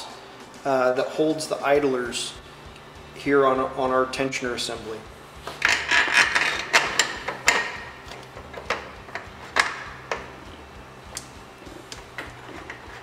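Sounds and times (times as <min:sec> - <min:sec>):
metal tools clicking and tapping: 0:05.6 - 0:10.3.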